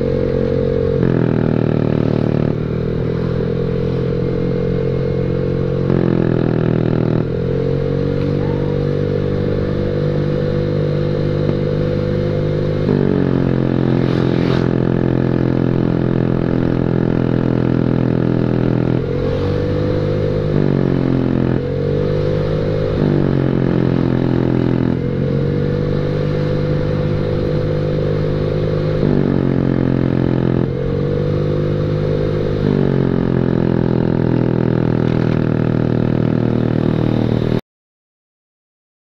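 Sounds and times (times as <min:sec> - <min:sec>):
scooter engine revving: 0:00.0 - 0:37.6.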